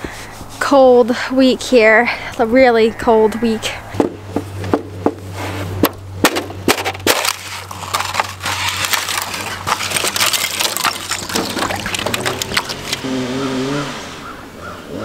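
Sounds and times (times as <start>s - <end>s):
ice cracking under boot: 6.3s - 13.1s.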